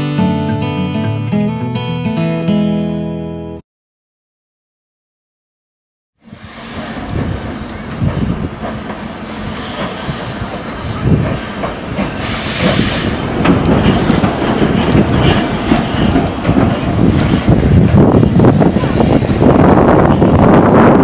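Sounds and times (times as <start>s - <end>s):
steam hissing: 6.2s - 18.9s
steam locomotive exhaust beats: 6.2s - 21.0s
wheels clattering on rail: 6.4s - 20.6s.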